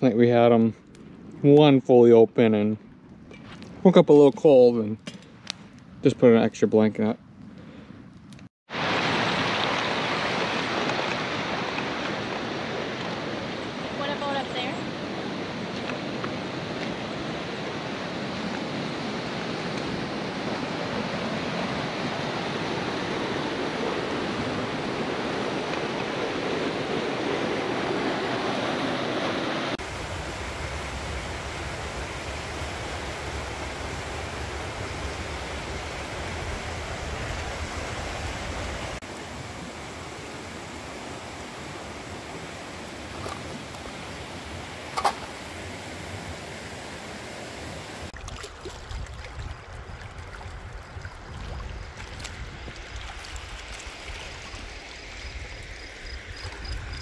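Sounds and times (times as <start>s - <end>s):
river water rushing over rocks: 8.7s - 13.0s, 20.3s - 48.2s.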